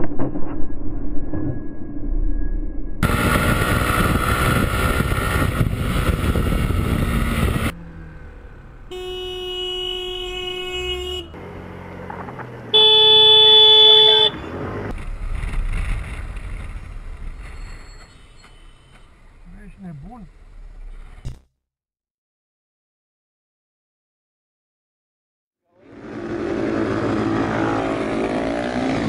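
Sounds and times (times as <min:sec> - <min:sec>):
wind noise: 0:00.0 - 0:07.8
motorcycle running: 0:03.0 - 0:17.6, 0:25.8 - 0:29.0
traffic noise: 0:03.0 - 0:21.4, 0:25.8 - 0:29.0
higher horn blast: 0:08.8 - 0:11.4
vehicle horn held note: 0:08.9 - 0:11.4, 0:12.8 - 0:14.4.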